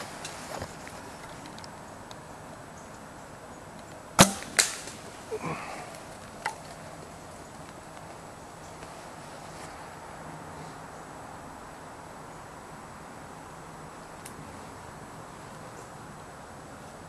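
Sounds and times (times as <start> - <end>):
arrow striking animal: 4.2 - 5.0
bowstring release crack: 4.2 - 5.0.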